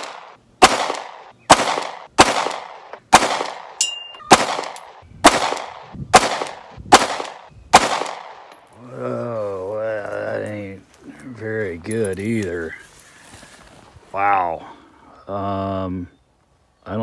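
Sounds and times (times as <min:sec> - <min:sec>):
pistol shots echoing: 0:00.0 - 0:08.5.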